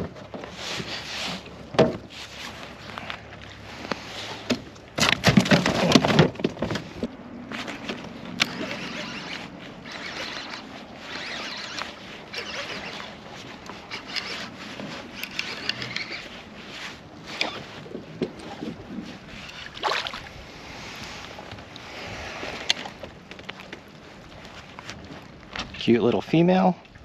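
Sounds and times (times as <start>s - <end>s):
gear knocking and rustling: 0.0s - 19.8s.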